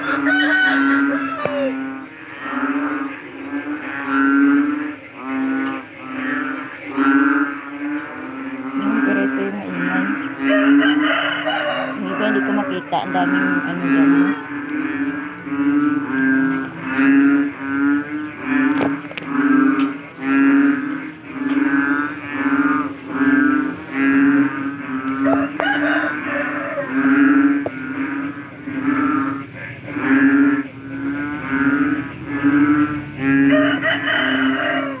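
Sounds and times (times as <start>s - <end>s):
frog calling: 0.0s - 35.0s.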